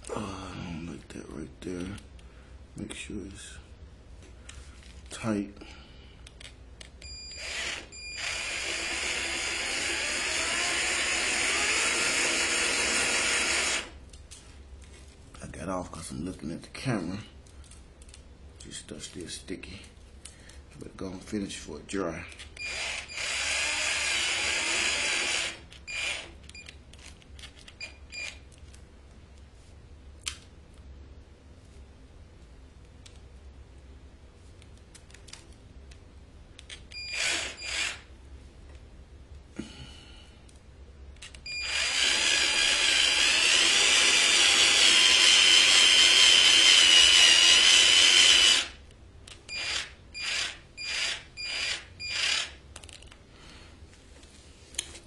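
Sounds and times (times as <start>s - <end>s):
drill motor spinning: 7.3s - 14.0s, 22.6s - 26.4s, 37.0s - 38.1s, 41.5s - 48.8s, 49.5s - 52.6s.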